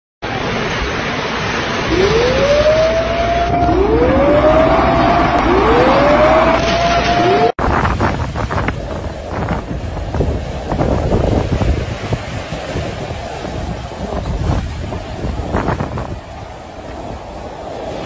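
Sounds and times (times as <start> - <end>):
floodwater rushing: 0.2 - 18.0
alarm wailing: 1.9 - 7.5.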